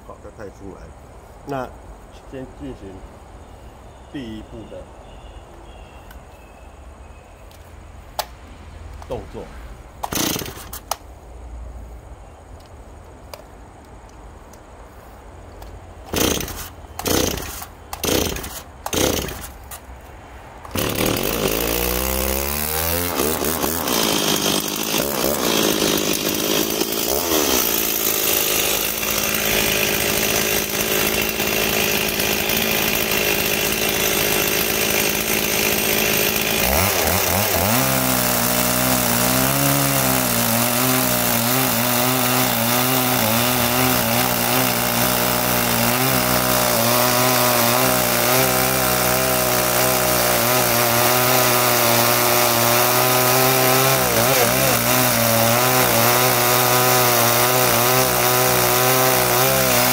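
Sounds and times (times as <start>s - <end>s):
chainsaw pull-start bursts: 10.0s - 11.0s, 16.1s - 19.8s, 20.7s - 59.9s
chainsaw revving and cutting wood: 10.0s - 11.0s, 16.1s - 19.8s, 20.7s - 59.9s.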